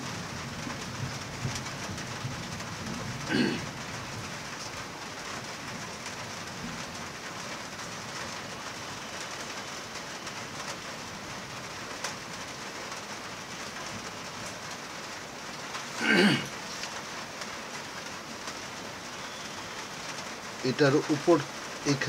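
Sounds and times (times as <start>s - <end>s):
heavy rain falling: 0.0s - 22.0s.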